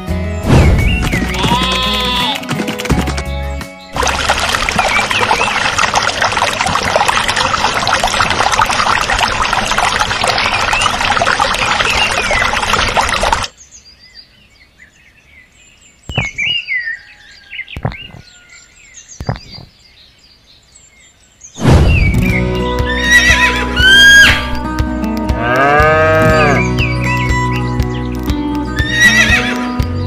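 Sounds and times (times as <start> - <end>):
birds chirping: 0.2 - 6.5, 9.8 - 24.7, 25.6 - 30.0
water pouring: 3.9 - 13.5.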